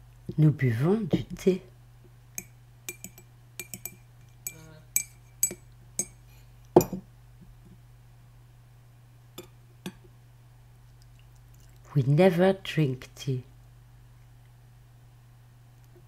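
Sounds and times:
glass teacup clinking: 6.8s - 7.0s
heavier knock: 6.8s - 7.0s.

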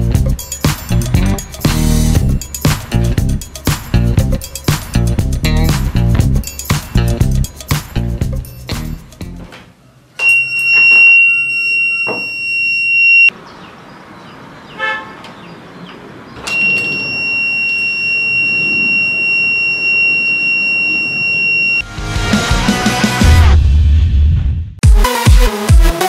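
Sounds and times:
high-pitched alarm buzzer: 10.2s - 13.3s, 16.5s - 21.9s.

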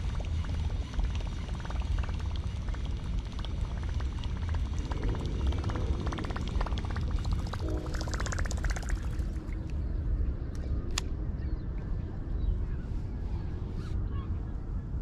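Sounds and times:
lure and reel ticking: 0.0s - 9.2s
steady low rumble: 0.0s - 15.0s.

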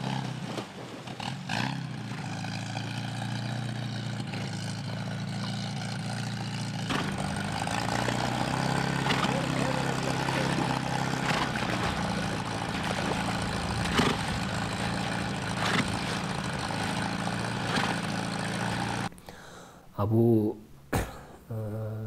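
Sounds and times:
water splashing around hull: 0.0s - 1.5s, 6.9s - 19.1s
boat motor humming: 0.0s - 19.5s.

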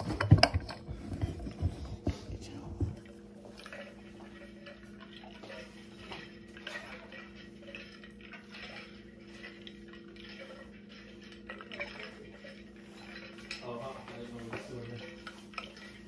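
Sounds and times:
steady low hum: 0.0s - 16.0s
kitchen utensils clicking: 3.6s - 16.0s.

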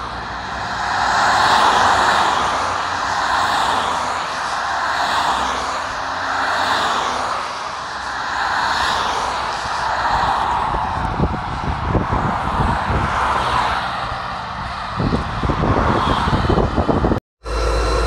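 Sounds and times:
low rumbling gusts: 0.0s - 18.0s
ambulance siren wailing: 17.4s - 18.0s.

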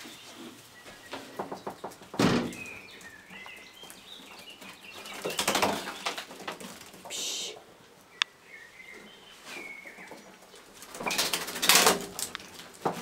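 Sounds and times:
quails chirping: 0.0s - 6.3s, 7.1s - 11.5s
rustling and scratching: 0.0s - 8.0s, 9.0s - 13.0s
loud thump: 2.2s - 2.6s.

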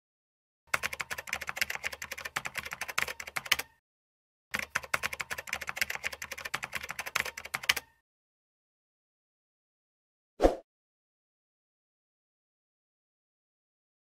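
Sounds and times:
keyboard typing clicks: 0.7s - 3.8s, 4.5s - 8.0s.

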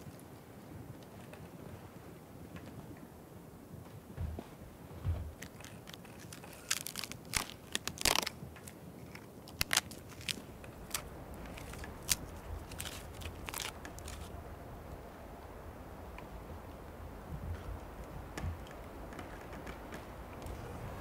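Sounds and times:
bark tearing and crackling: 5.3s - 14.3s.

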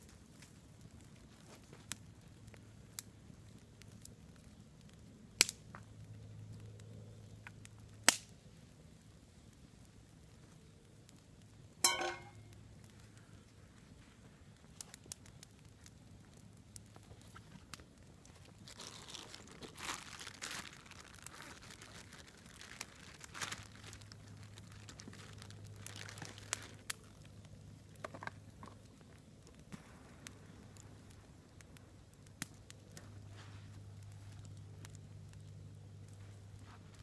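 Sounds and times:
campfire crackling and popping: 0.0s - 37.0s
plastic bag crinkling: 18.5s - 26.8s.

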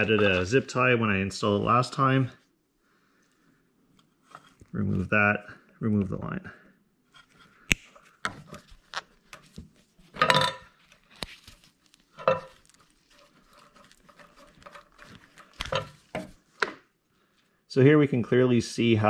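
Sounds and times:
rubber hose scraping and rubbing: 0.0s - 2.0s, 4.0s - 5.4s, 7.1s - 16.6s.

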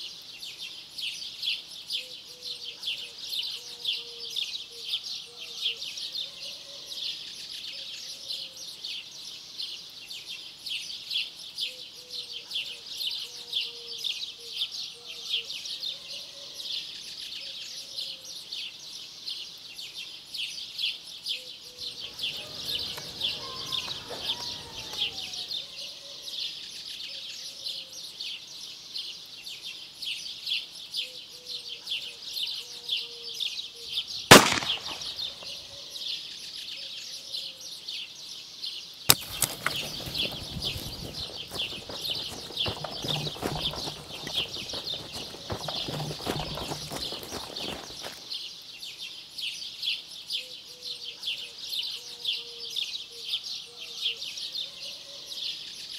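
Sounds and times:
birds chirping: 21.6s - 26.2s, 33.7s - 36.1s, 39.1s - 48.6s
cicadas chorus: 21.7s - 26.0s, 39.3s - 48.3s
sharp crack: 34.3s - 35.5s, 39.1s - 40.8s
leaves rustling: 34.3s - 35.6s, 39.1s - 48.4s.

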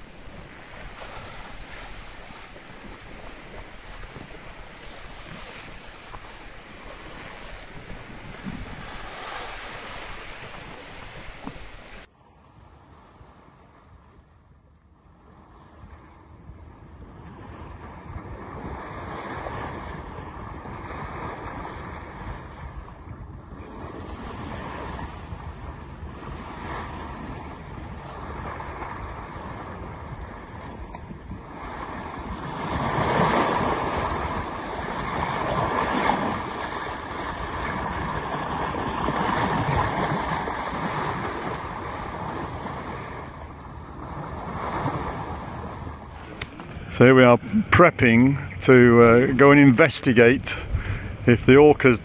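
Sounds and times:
wind buffeting microphone: 0.0s - 12.1s, 15.8s - 52.0s
water splashing along hull: 0.0s - 52.0s.

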